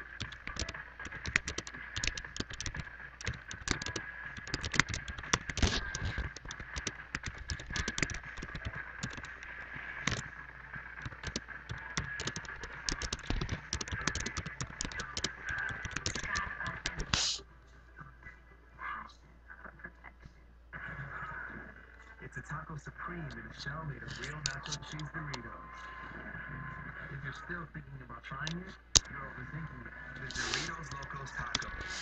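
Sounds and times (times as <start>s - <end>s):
typing on keyboard: 0.0s - 10.3s, 11.0s - 17.3s, 24.2s - 25.0s, 30.2s - 31.8s.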